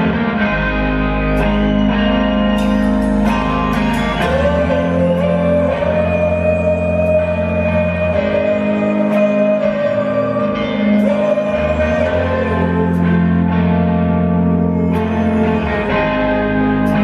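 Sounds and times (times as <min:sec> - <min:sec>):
drums: 0:00.0 - 0:06.3
bass guitar: 0:00.0 - 0:17.0
electric guitar riff: 0:00.0 - 0:17.0.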